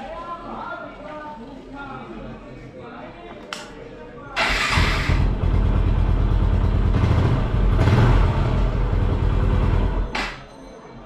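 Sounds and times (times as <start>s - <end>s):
motorcycle engine running: 4.5s - 10.1s.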